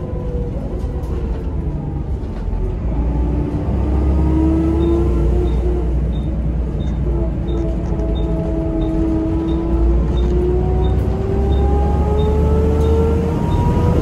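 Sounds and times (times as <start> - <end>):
diesel engine rumble: 0.0 - 14.0
bus gearbox whining: 4.5 - 14.0.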